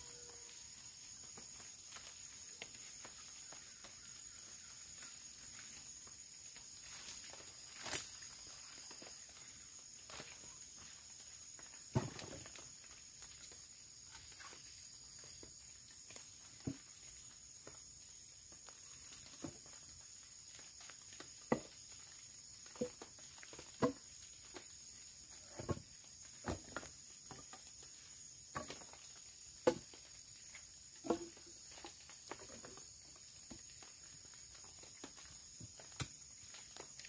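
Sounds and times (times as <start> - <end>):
high-pitched insect drone: 0.0 - 23.2.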